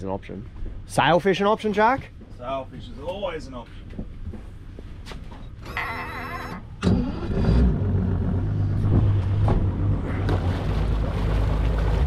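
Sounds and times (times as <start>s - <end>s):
boat engine starter whine: 5.6s - 10.4s
boat engine idling: 8.8s - 12.0s.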